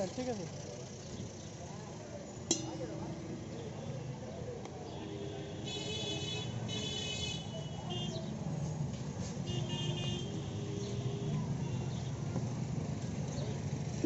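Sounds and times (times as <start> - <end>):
traffic rumble: 0.0 - 14.0
vehicle horns honking: 4.8 - 8.4, 9.2 - 12.3.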